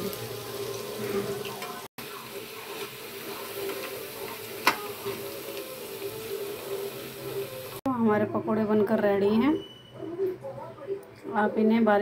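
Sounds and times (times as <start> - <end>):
food sizzling in hot oil: 0.0 - 7.9.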